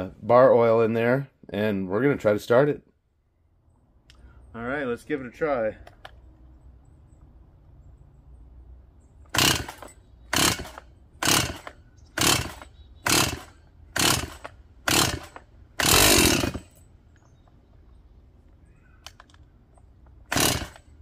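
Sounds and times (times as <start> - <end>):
chainsaw recoil starter pulls: 9.3 - 16.8, 20.1 - 21.0.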